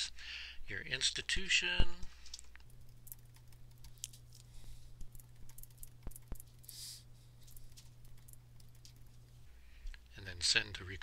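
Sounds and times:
faint low hum: 0:00.0 - 0:11.0
keyboard key clicks: 0:05.0 - 0:06.5.

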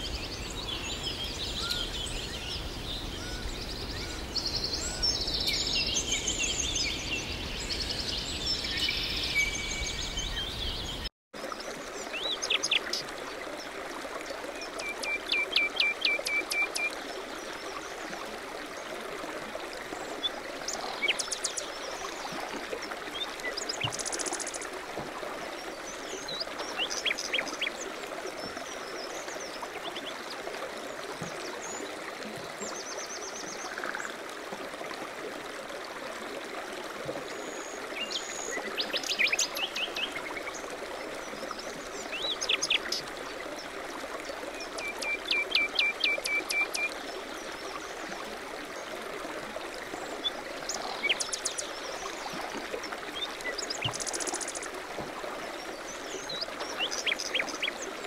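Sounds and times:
stream water over weir: 0:00.0 - 0:58.0.

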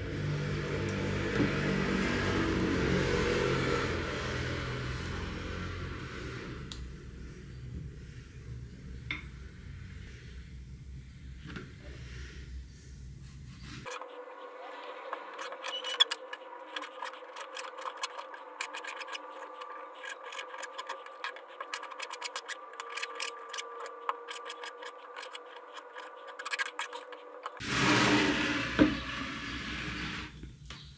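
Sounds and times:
scraping: 0:13.6 - 0:30.4.

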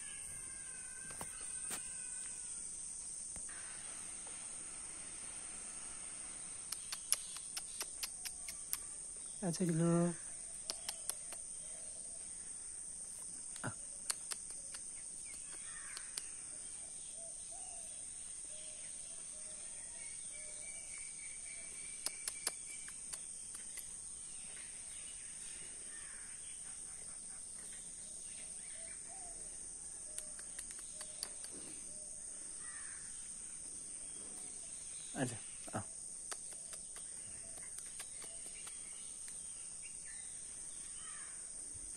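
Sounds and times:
insects chirring: 0:00.0 - 0:41.9
light clicks: 0:10.6 - 0:11.4, 0:30.1 - 0:31.6.

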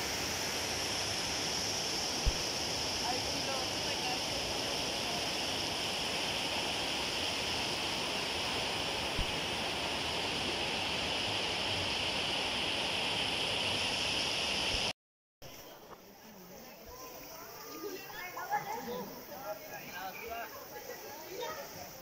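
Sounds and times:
water rushing over rock: 0:00.0 - 0:14.9.

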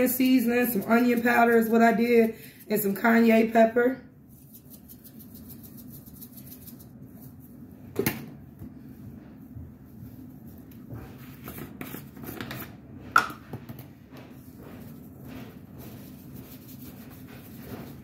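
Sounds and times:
spice shaker rattling: 0:04.4 - 0:06.9.

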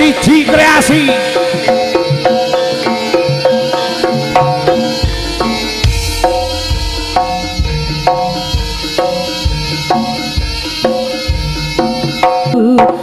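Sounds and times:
kendang drums beating: 0:00.1 - 0:12.6
tuned gong strokes: 0:02.4 - 0:11.8.

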